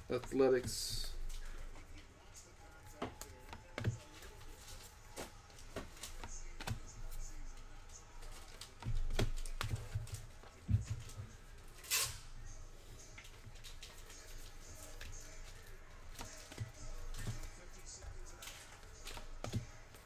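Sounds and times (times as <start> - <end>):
cards clicking and tapping: 5.6 - 7.0, 8.2 - 11.3, 14.8 - 20.0.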